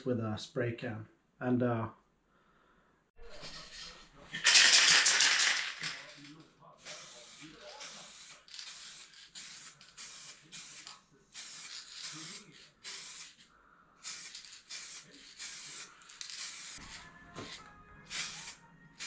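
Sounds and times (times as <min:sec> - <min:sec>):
spray can hissing bursts: 0:06.8 - 0:18.6.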